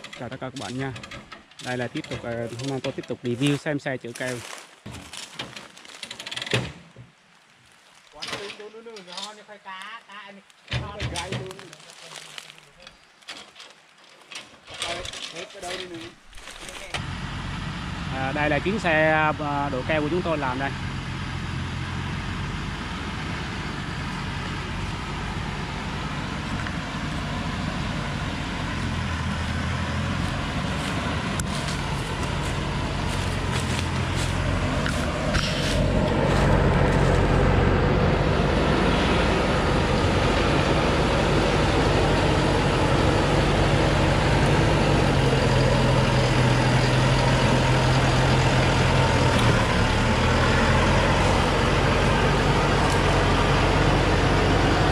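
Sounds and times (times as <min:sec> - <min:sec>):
diesel truck engine under load: 0:00.0 - 0:07.0, 0:13.3 - 0:54.9
sharp clicks and rustles: 0:04.9 - 0:07.1.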